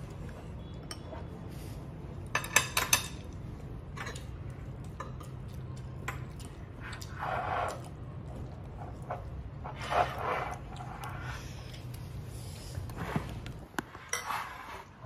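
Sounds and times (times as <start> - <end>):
metal utensils clicking on dish: 2.3 - 6.5.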